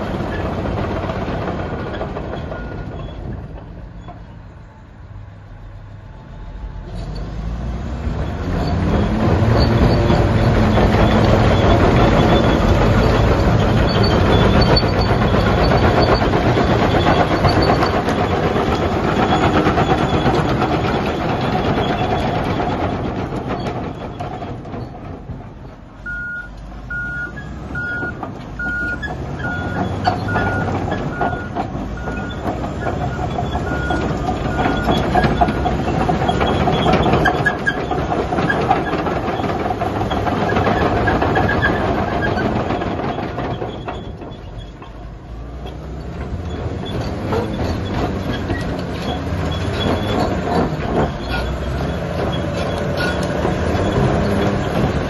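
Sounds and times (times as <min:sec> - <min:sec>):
bulldozer diesel engine: 0:00.0 - 0:55.0
reversing alarm beeping: 0:26.0 - 0:32.4.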